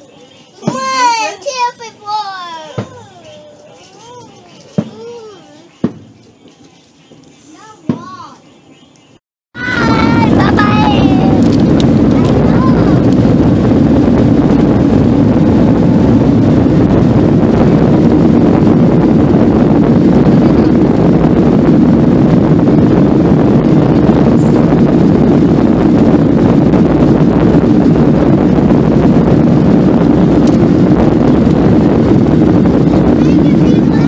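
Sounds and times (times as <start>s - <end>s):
jet engines rumbling in cabin: 9.6s - 34.0s.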